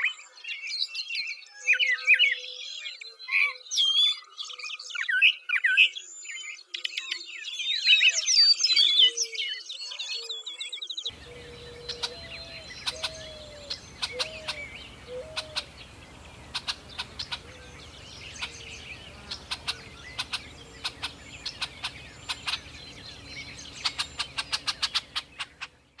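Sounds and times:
birds chipping: 10.9 - 26.0
low hooked bird notes: 11.1 - 25.8.

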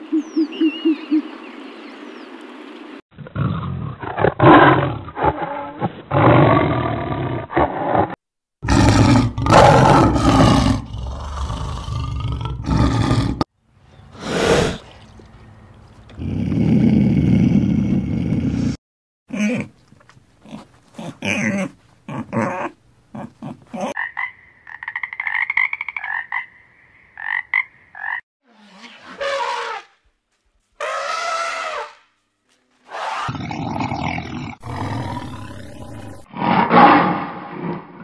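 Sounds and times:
lion growling and roaring: 3.2 - 13.5, 16.1 - 18.8, 33.0 - 37.8.

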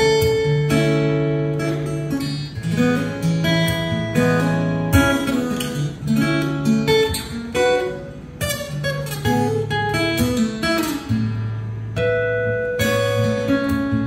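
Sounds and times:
acoustic guitar instrumental: 0.0 - 14.0.

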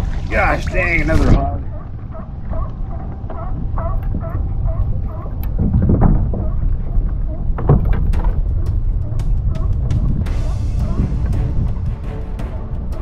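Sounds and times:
wind on microphone: 0.0 - 13.0
sharp clicks and knocks: 7.5 - 10.3.

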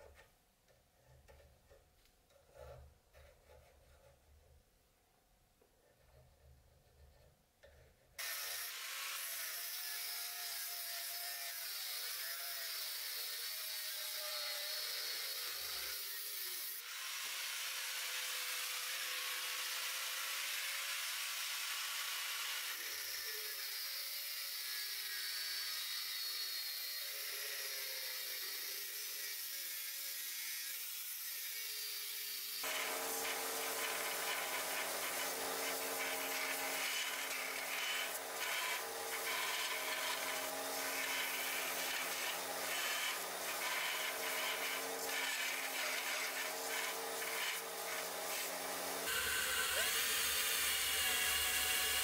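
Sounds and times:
angle grinder cutting steel: 8.2 - 52.0.

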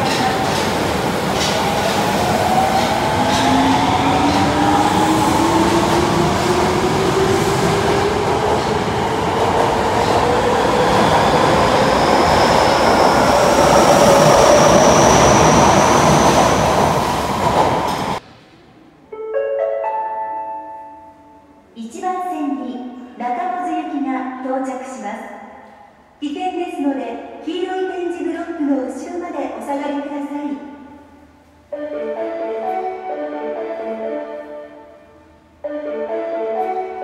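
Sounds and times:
subway train motor whine: 0.1 - 18.7.

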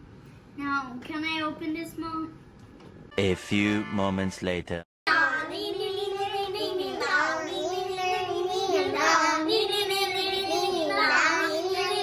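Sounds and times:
children singing: 5.1 - 12.0.

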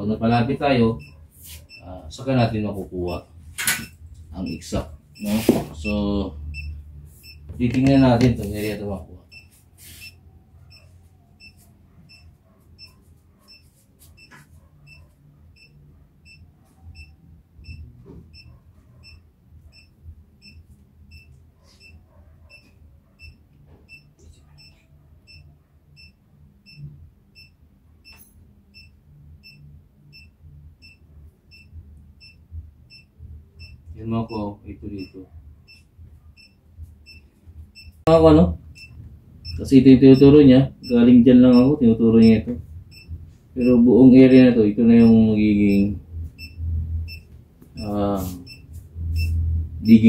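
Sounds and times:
faint low hum: 0.0 - 50.0
short high beeps: 3.1 - 7.5, 35.0 - 35.8, 38.8 - 50.0.

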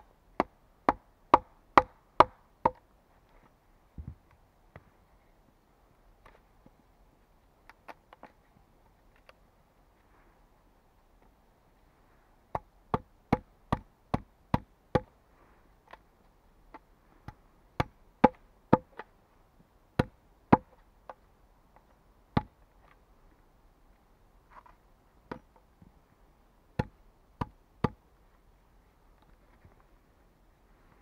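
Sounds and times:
axe chopping into a log: 17.3 - 19.0.

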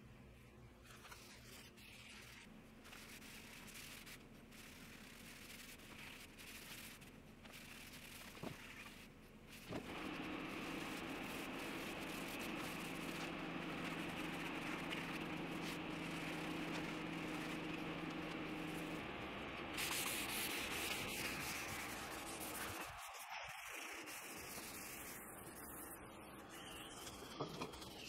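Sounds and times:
low hum: 9.7 - 27.9.

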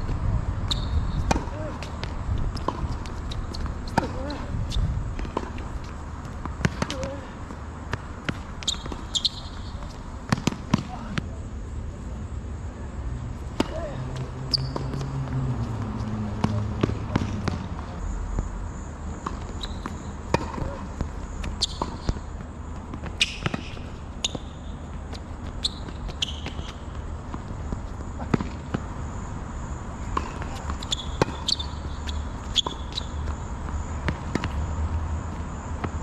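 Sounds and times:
ball bouncing on court: 0.7 - 4.4, 5.2 - 7.2, 7.9 - 11.2, 13.6 - 18.5, 19.2 - 28.9, 30.1 - 34.7, 35.8 - 36.0
racket striking tennis ball: 1.3 - 4.5, 19.2 - 22.2, 23.0 - 24.5, 30.1 - 34.7.

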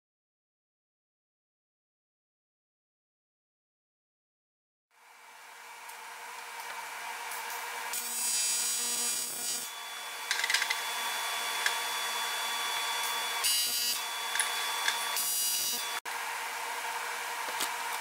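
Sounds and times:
welding arc buzzing: 5.9 - 16.0.

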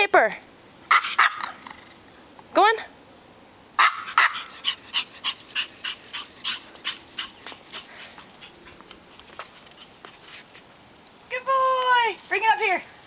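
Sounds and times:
small dog yapping: 0.9 - 1.9, 3.8 - 8.8.

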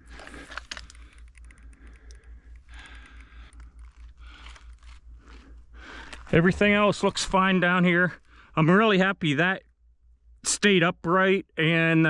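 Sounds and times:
gravel stones shifting: 0.0 - 1.3
sharp clicks: 0.0 - 6.2
pulsing low hum: 0.0 - 10.8.

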